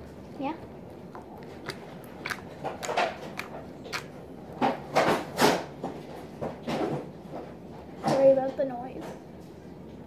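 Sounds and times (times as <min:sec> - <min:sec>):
slime clicks and squishes: 0:01.1 - 0:04.1.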